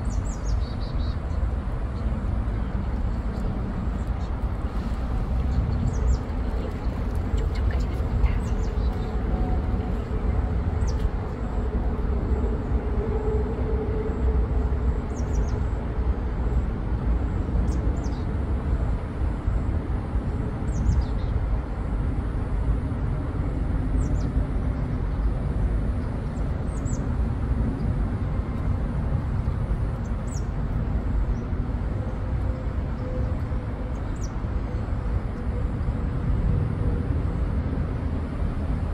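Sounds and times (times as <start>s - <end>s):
steady low rumble: 0.0s - 38.9s
small birds chirping: 5.4s - 9.2s.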